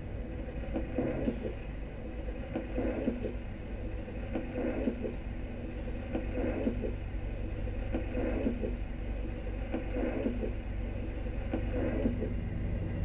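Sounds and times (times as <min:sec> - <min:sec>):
turntable speaker hum: 0:00.0 - 0:13.0
stylus clicks and noise: 0:00.6 - 0:01.7, 0:02.4 - 0:05.3, 0:06.0 - 0:08.9, 0:09.6 - 0:10.6, 0:11.4 - 0:12.4.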